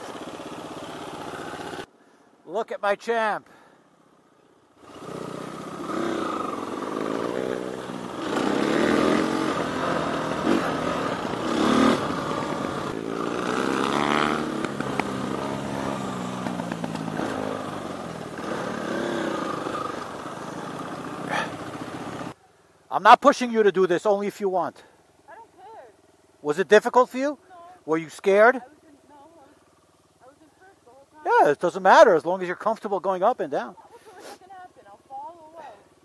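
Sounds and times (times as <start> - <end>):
dirt bike engines revving: 4.8 - 22.4.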